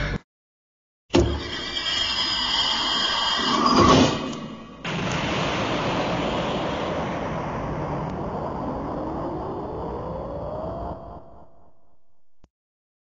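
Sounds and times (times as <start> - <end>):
thin rising whine: 1.4 - 12.5
dense rushing roar: 4.6 - 12.0.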